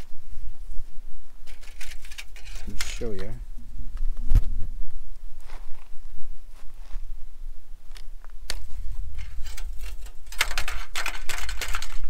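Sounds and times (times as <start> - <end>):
wind rumble on microphone: 0.0 - 10.3
pole scraping tin on gravel: 1.4 - 3.4, 8.6 - 12.0.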